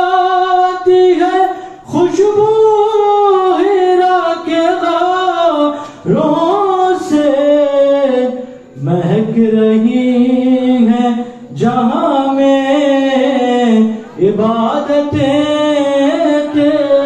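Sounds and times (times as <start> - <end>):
man singing unaccompanied: 0.0 - 17.0.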